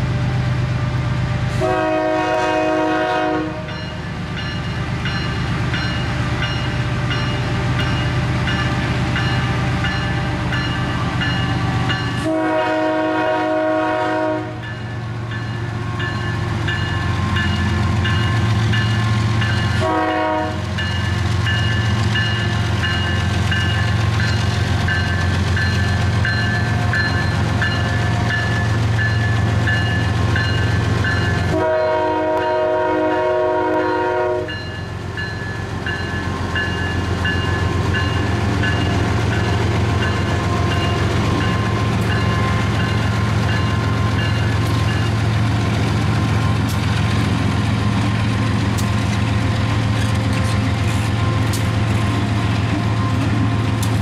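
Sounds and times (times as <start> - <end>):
diesel locomotives rumbling: 0.0 - 54.0
locomotive horn blasts: 1.6 - 3.9, 12.1 - 14.8, 19.6 - 20.8, 31.5 - 34.7
locomotive bell ringing: 3.6 - 12.4, 14.6 - 33.2, 33.8 - 48.6, 49.2 - 54.0.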